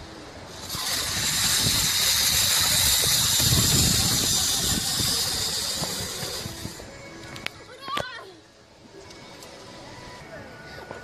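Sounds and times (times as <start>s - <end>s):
zip-line pulleys whirring on cable: 0.0s - 7.4s.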